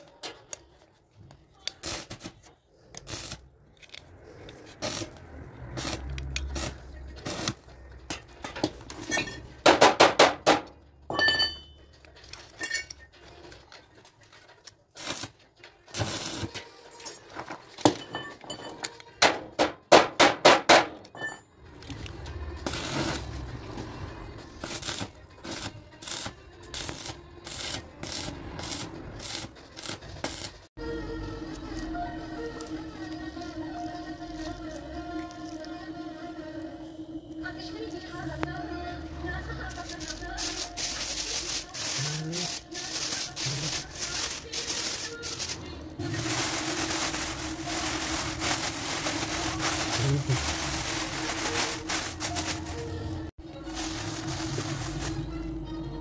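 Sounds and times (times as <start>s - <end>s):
metal clinking and tapping: 8.1s - 13.2s.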